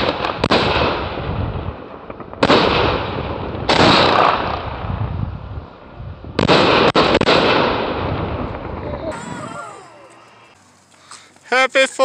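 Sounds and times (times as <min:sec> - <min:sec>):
firework crackle: 0:00.0 - 0:05.5
firework booms: 0:00.0 - 0:10.6.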